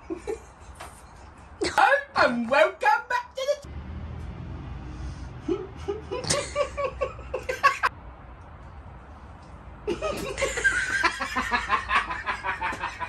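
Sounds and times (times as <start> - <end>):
man laughing hard: 5.5 - 7.9, 9.9 - 13.0.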